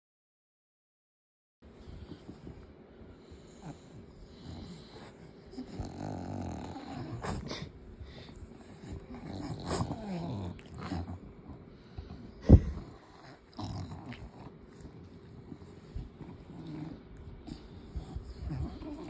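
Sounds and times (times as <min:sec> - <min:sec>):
dog grunting: 0:03.5 - 0:11.6, 0:12.4 - 0:19.0.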